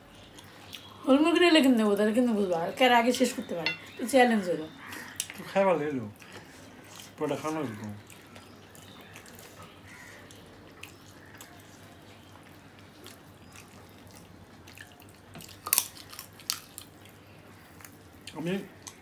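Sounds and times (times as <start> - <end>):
wet squishing of food by hand: 4.9 - 19.0
chewing: 6.2 - 19.0.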